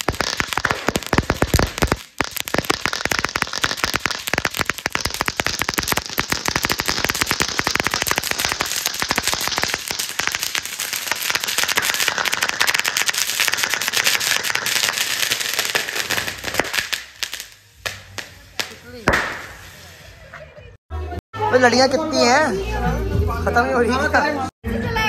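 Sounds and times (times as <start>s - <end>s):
single firecracker pops: 0.0s - 19.9s
string of firecrackers banging: 0.0s - 20.6s.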